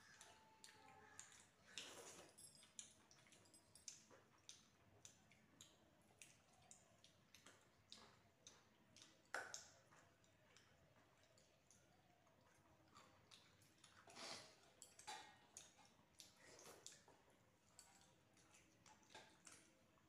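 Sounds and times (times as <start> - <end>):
chewing clicks: 0.1 - 20.0.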